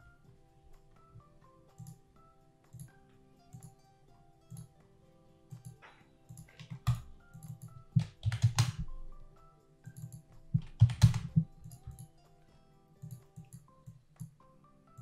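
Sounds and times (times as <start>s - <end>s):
soft background music: 0.0s - 15.0s
keyboard typing: 5.5s - 9.0s, 9.9s - 12.1s, 13.0s - 14.4s.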